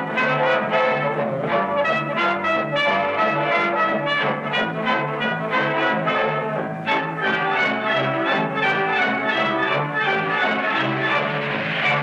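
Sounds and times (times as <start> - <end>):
orchestral music with brass: 0.0 - 12.0.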